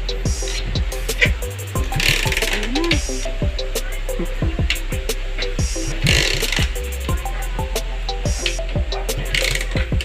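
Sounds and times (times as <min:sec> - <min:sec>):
bass drum hits: 0:00.0 - 0:09.2, 0:09.8 - 0:10.0
bright cymbal hits: 0:00.0 - 0:10.0
short repeated melody notes: 0:00.0 - 0:10.0.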